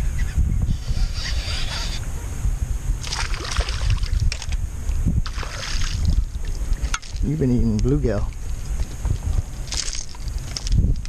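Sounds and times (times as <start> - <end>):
wind rumble on microphone: 0.0 - 11.0
fish splashing at surface: 5.3 - 6.9.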